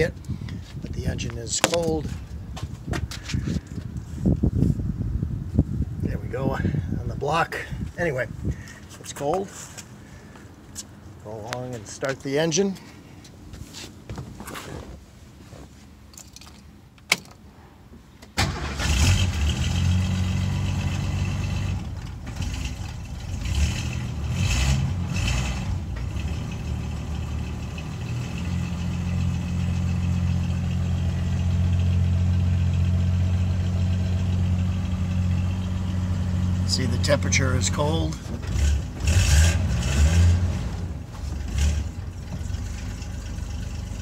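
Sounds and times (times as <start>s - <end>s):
car engine starting and idling: 18.2s - 44.0s.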